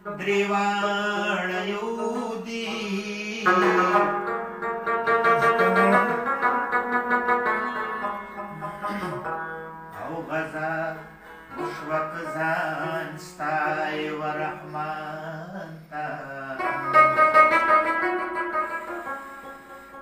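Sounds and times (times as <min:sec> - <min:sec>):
man singing: 0:00.0 - 0:04.4, 0:05.2 - 0:06.7, 0:09.9 - 0:17.7
plucked lute melody: 0:00.0 - 0:20.0.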